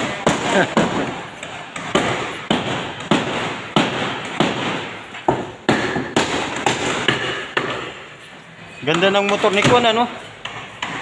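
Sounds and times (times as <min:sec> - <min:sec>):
sharp echoing knocks: 0:00.0 - 0:08.1.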